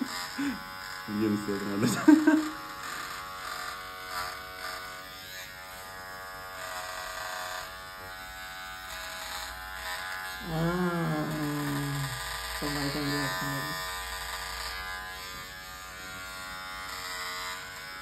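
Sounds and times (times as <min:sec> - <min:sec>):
small electric motor buzzing: 0:00.0 - 0:18.0
person speaking: 0:00.4 - 0:02.5, 0:10.4 - 0:13.8.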